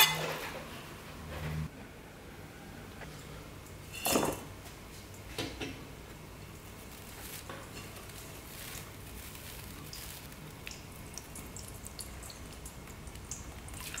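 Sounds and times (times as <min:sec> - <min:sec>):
cloth rustling: 0:06.8 - 0:10.4.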